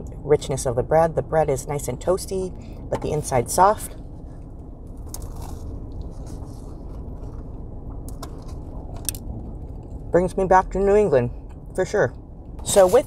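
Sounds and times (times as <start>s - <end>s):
low rumble: 0.0s - 13.0s
bread crunching: 4.9s - 10.0s.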